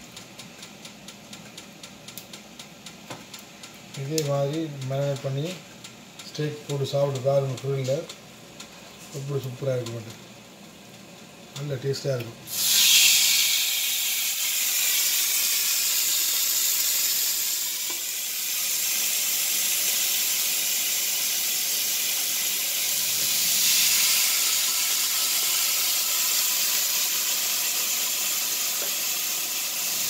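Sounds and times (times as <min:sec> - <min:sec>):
steak sizzling on a grill: 0:12.5 - 0:30.0.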